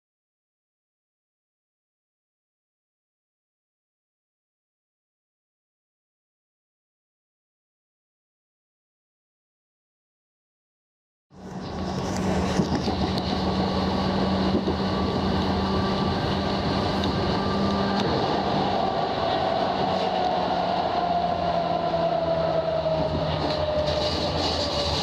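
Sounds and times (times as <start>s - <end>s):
electric train running on track: 11.4s - 25.0s
train motor whine: 11.4s - 25.0s.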